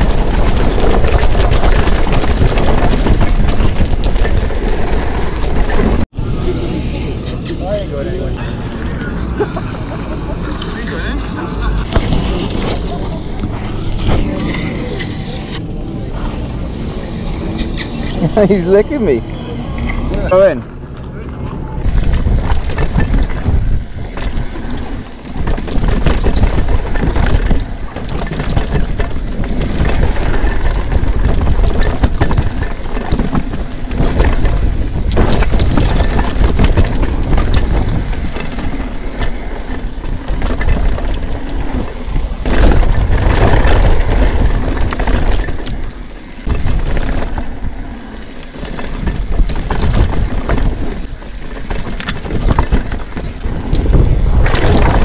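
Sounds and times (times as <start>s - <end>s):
bike rattling and knocking: 0.0s - 6.1s, 21.8s - 55.0s
tyres rolling over dirt and stones: 0.0s - 6.1s, 21.3s - 55.0s
wind buffeting microphone: 0.0s - 7.2s, 21.6s - 55.0s.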